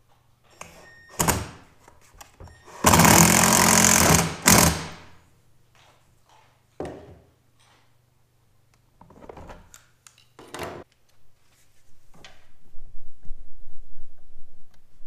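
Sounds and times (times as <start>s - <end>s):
cordless drill running under load: 2.7s - 5.1s
knocks and handling sounds: 8.7s - 12.5s.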